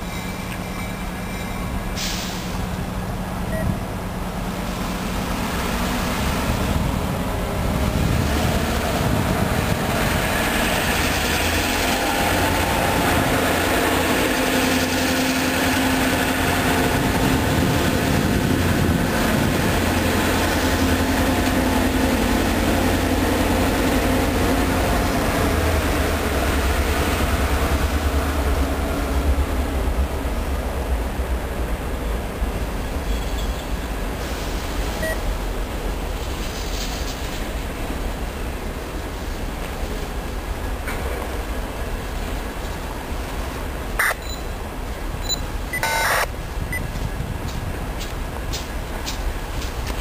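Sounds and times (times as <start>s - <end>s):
freight cars rolling on rails: 0.0s - 50.0s
locomotive engine drone: 0.0s - 50.0s
held tone: 45.2s - 46.3s.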